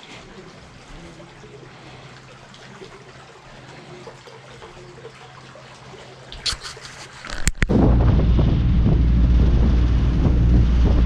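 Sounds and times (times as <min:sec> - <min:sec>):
faint trickling water: 0:00.0 - 0:07.7
low steady hum: 0:00.0 - 0:11.0.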